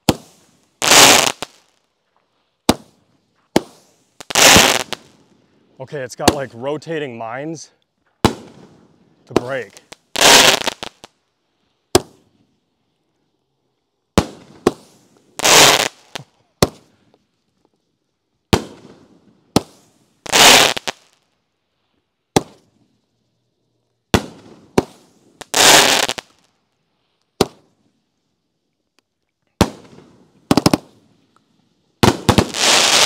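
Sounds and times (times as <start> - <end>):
firework rushing blasts: 0.0 - 1.7, 2.7 - 5.2, 8.2 - 11.1, 14.2 - 16.8, 18.5 - 21.1, 24.1 - 26.3, 32.0 - 33.0
firework bangs: 0.0 - 1.8, 2.6 - 5.2, 8.2 - 11.1, 11.9 - 12.3, 14.2 - 16.9, 18.5 - 21.2, 22.3 - 22.7, 24.1 - 26.4, 29.6 - 31.0, 32.0 - 33.0.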